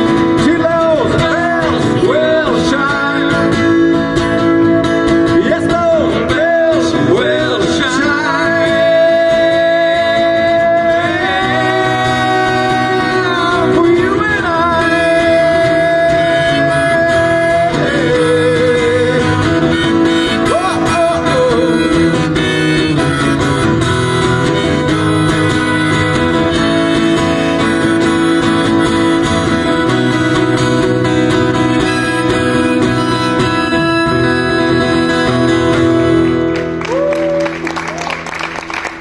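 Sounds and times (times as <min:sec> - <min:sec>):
lead melody line: 0:00.0 - 0:38.8
acoustic guitar strummed: 0:00.0 - 0:39.0.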